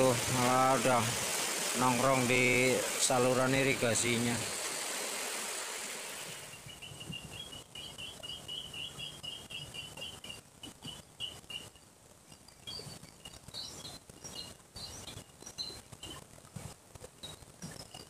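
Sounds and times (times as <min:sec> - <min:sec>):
faint steady hiss: 0:00.0 - 0:18.0
small birds chirping: 0:06.3 - 0:16.2.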